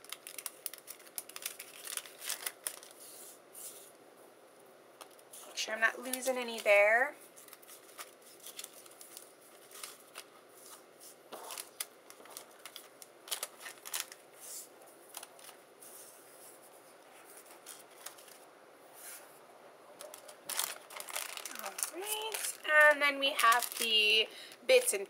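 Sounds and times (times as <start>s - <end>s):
plastic package crinkling: 0.0s - 3.0s, 5.9s - 14.4s, 15.0s - 15.6s, 17.4s - 18.4s, 20.0s - 25.0s
papery rustling and shuffling: 0.0s - 3.9s, 5.0s - 19.3s, 20.0s - 25.0s.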